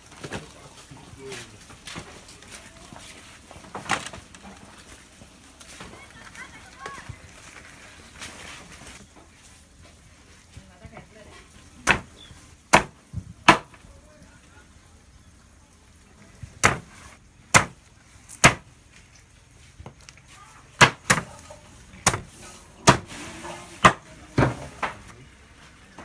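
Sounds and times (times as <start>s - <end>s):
cleaver chopping fish on wood: 11.8s - 12.1s, 12.7s - 13.8s, 16.6s - 16.9s, 17.5s - 17.8s, 18.4s - 18.6s, 20.8s - 21.3s, 22.0s - 23.0s.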